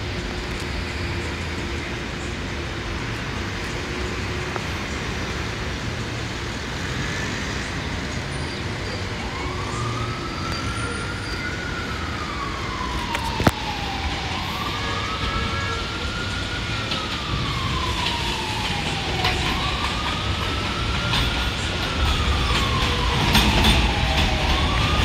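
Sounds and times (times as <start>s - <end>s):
subway train rumbling: 0.0s - 25.0s
siren wailing: 9.0s - 25.0s.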